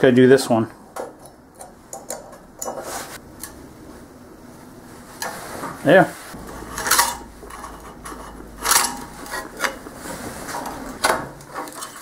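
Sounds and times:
scribe scratching steel plate: 0:06.3 - 0:12.0.

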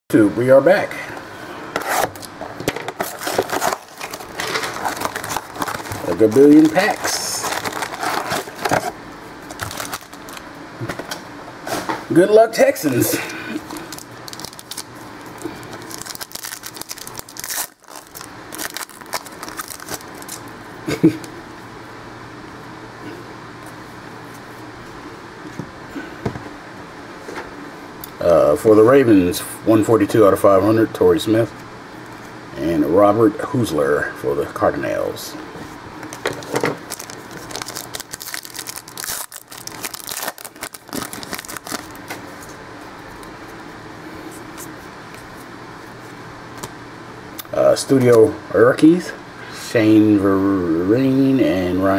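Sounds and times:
wrapper tearing and crinkling: 0:03.0 - 0:10.5, 0:13.6 - 0:20.5, 0:36.1 - 0:42.0.

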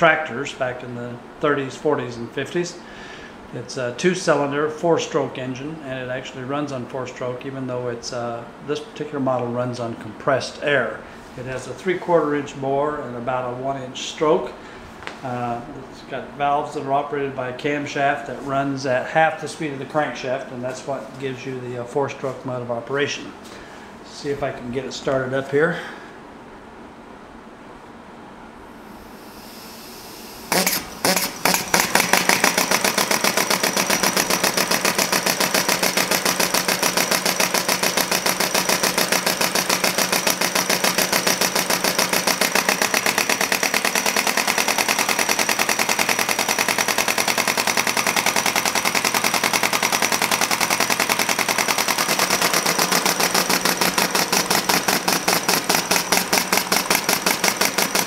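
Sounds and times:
faint air hiss: 0:00.0 - 0:31.4
model engine exhaust puffs: 0:29.0 - 0:58.0.

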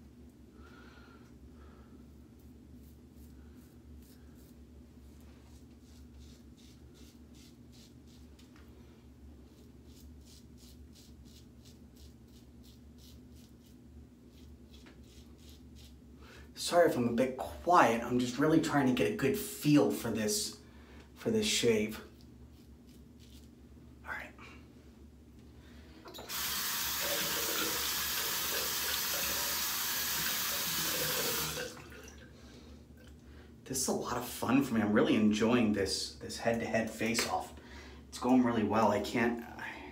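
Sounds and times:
razor scraping stubble: 0:05.5 - 0:08.5, 0:22.2 - 0:23.5
sink tap running: 0:26.1 - 0:31.9.

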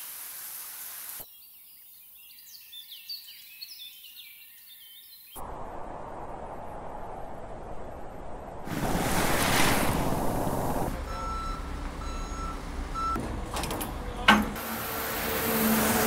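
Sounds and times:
outdoor machinery noise: 0:05.4 - 0:16.0.

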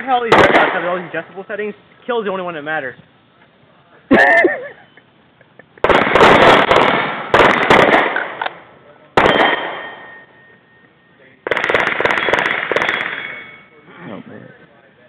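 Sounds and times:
rifle shots: 0:00.0 - 0:01.2, 0:05.8 - 0:08.6, 0:09.2 - 0:10.2, 0:11.4 - 0:13.4.

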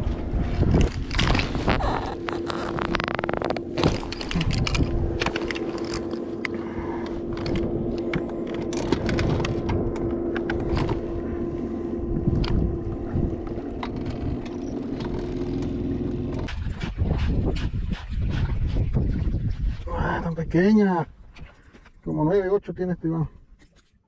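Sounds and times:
electric trolling motor whine: 0:00.0 - 0:16.5.

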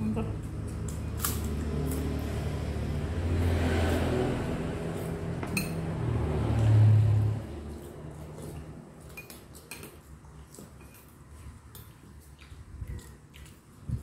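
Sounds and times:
vehicle engine running: 0:00.0 - 0:08.1
spoon clinking ceramic bowl: 0:05.5 - 0:05.8.

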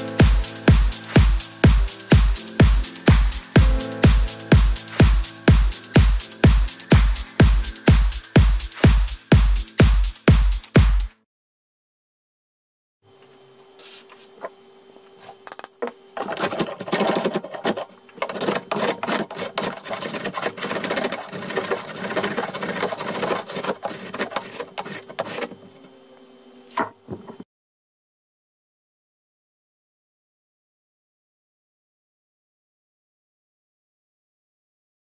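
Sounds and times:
plane knocking against wood: 0:15.8 - 0:25.6
hand plane shaving wood: 0:16.2 - 0:25.9.

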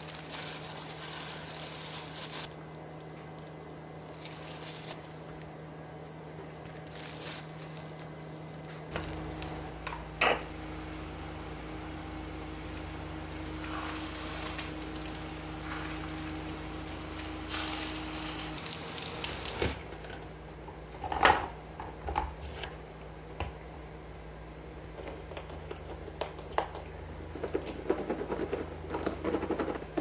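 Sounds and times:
patties sizzling in frying pan: 0:10.5 - 0:19.8.

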